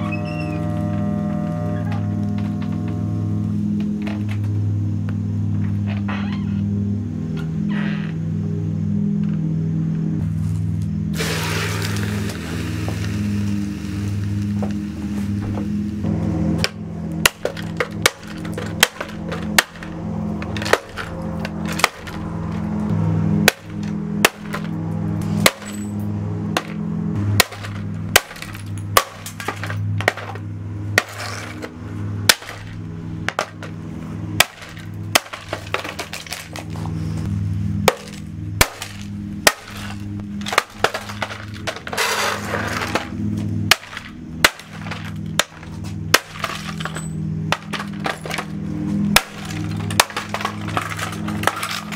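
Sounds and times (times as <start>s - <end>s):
pieces falling onto concrete: 16.6s - 22.6s, 27.4s - 30.4s, 34.4s - 36.8s, 37.9s - 43.1s, 43.7s - 48.6s, 49.2s - 51.9s.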